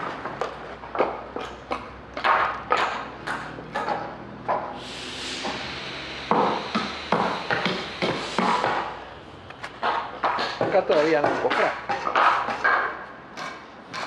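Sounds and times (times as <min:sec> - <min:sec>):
steady hiss: 0:04.8 - 0:09.6
hammer striking wood: 0:06.3 - 0:08.9.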